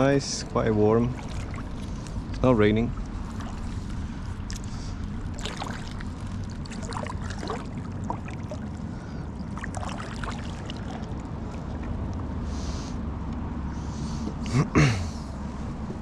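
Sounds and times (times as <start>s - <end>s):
paddle splashing: 0.0s - 12.1s
low steady rumble: 0.0s - 16.0s.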